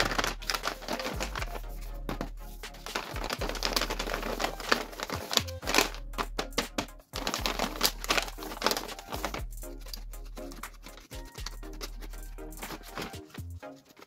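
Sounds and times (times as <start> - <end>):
paper bag crinkling: 0.0 - 6.4, 7.2 - 10.1
background music: 0.0 - 14.0.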